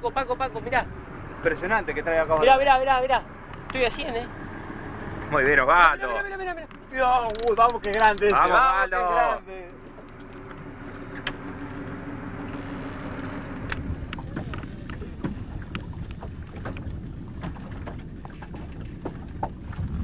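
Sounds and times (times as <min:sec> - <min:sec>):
fishing reel clicks and knocks: 0:07.2 - 0:08.5
steady low hum: 0:08.4 - 0:20.0
wind rumbling on microphone: 0:13.6 - 0:20.0.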